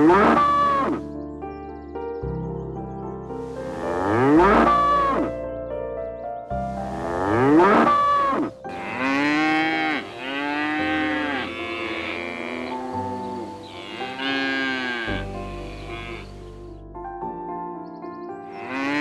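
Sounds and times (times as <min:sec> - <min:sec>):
soft background music: 0:00.0 - 0:19.0
animal calling in long cries: 0:07.0 - 0:16.6.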